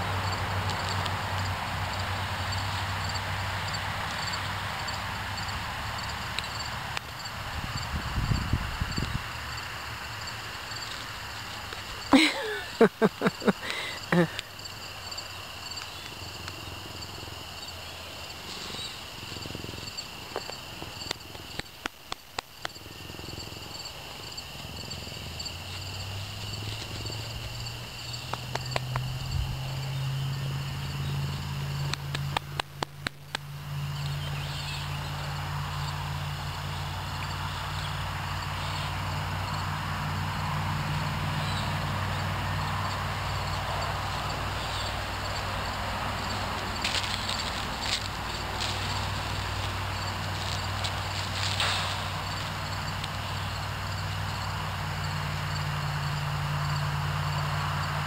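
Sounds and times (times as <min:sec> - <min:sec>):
insects chirping: 0:00.0 - 0:58.0
rustling: 0:46.2 - 0:53.4.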